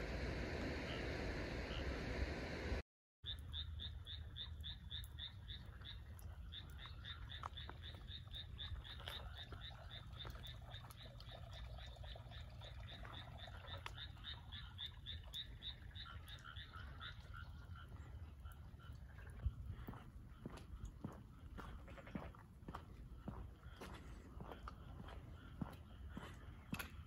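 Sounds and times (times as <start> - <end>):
low steady rumble: 0.0 - 2.8
frog chorus: 3.2 - 27.0.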